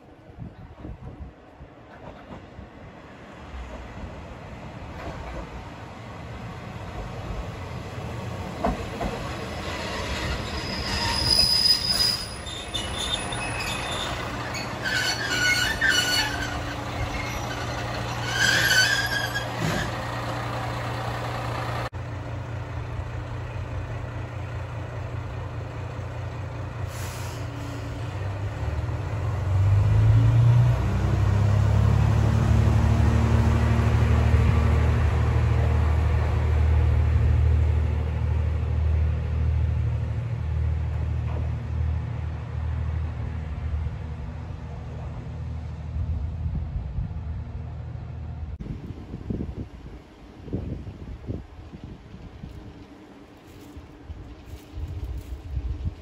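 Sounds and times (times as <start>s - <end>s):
diesel railcar engine: 0.0s - 56.0s
high-pitched brake squeals: 9.6s - 20.0s.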